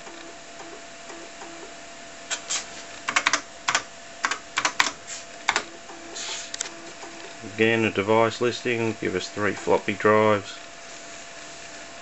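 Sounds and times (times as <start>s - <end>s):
computer keyboard key clicks: 3.1s - 5.6s.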